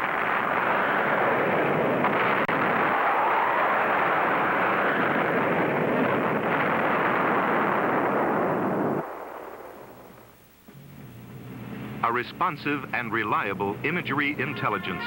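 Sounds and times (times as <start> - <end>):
explosion roar: 0.0 - 10.4.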